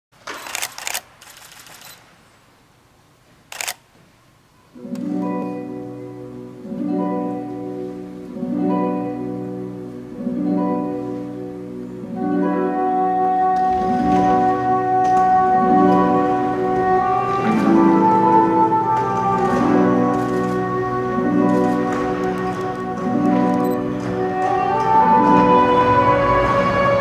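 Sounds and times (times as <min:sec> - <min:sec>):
sharp click: 0:00.2 - 0:02.0
soft pitched music notes: 0:04.8 - 0:27.0.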